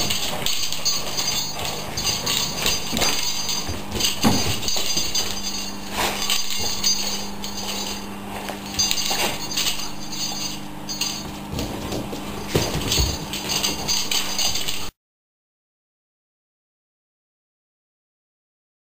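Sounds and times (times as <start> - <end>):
clinks and knocks of tug toy: 0.0 - 14.9
low hum: 0.0 - 14.9.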